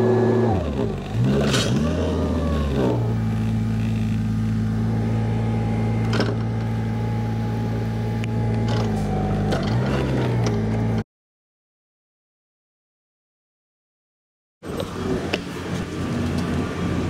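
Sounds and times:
forklift engine running: 0:00.0 - 0:11.0, 0:14.6 - 0:17.0.

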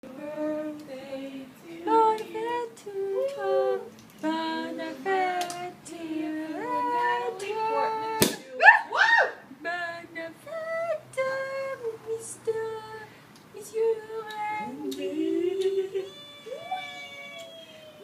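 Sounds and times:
people singing: 0:00.0 - 0:08.6, 0:09.6 - 0:16.1
high whoop: 0:08.5 - 0:09.4, 0:14.9 - 0:18.0.

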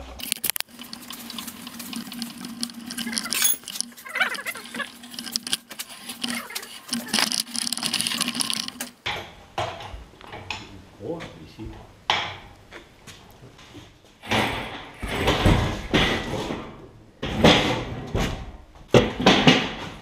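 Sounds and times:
pallet jack wheels rolling on concrete: 0:00.0 - 0:09.2, 0:14.2 - 0:18.2
wheel squeaks: 0:00.2 - 0:09.0
rattling clicks and knocks: 0:00.2 - 0:10.6.

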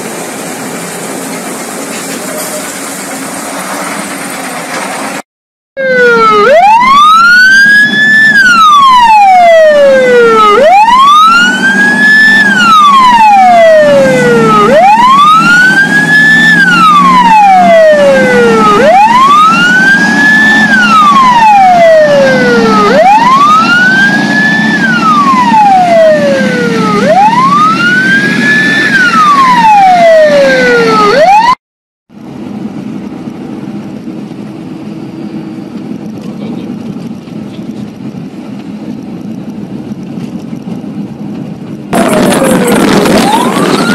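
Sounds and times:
vehicle rumble: 0:00.0 - 0:05.2, 0:32.2 - 0:43.9
police siren wailing: 0:05.8 - 0:31.6, 0:41.9 - 0:43.9.

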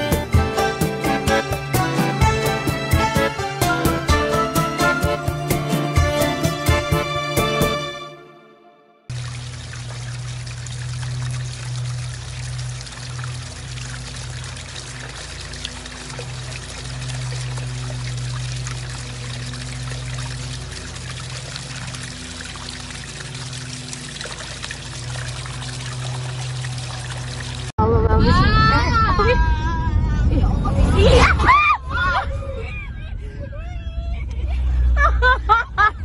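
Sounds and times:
water running along channel: 0:09.1 - 0:27.7
low hum: 0:09.1 - 0:36.0.

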